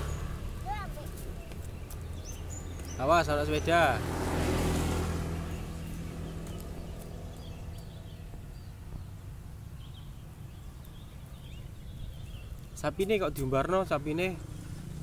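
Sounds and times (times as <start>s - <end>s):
motorbike engine passing: 0.0s - 9.1s, 12.8s - 15.0s.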